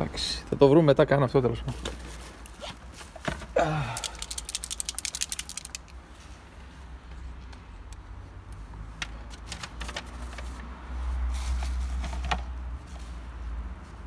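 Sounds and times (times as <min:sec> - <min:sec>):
clicks and rustling of objects: 0:01.7 - 0:06.4, 0:07.5 - 0:10.7.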